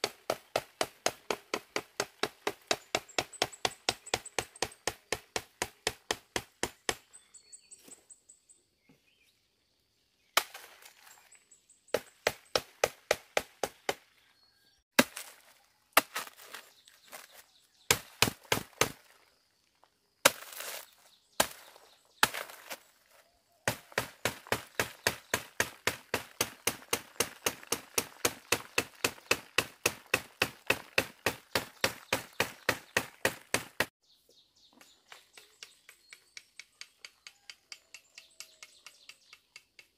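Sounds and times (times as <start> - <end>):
machete chopping ant nest: 0.0 - 7.1, 10.4 - 10.9, 12.0 - 14.0, 15.0 - 19.1, 20.2 - 22.8, 23.6 - 33.9.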